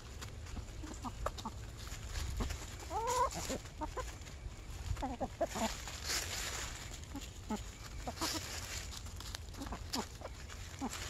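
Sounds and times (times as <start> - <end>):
dry leaves crackling: 0.0 - 11.0
hens clucking softly: 0.4 - 11.0
hen calls: 2.8 - 6.2, 6.8 - 8.8.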